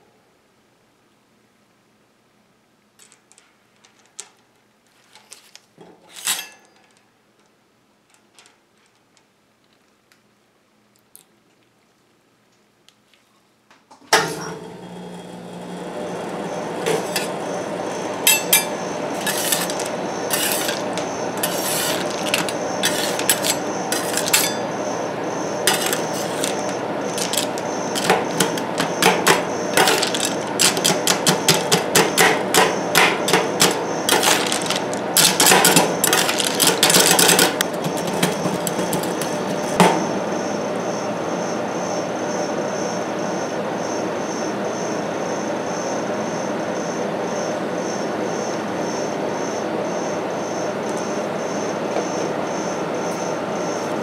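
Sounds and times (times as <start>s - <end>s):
machine hum: 14.1s - 54.0s
candy shells crunching: 18.3s - 24.6s, 25.7s - 39.7s
metal spatulas clacking on plate: 18.3s - 24.6s, 25.7s - 26.6s.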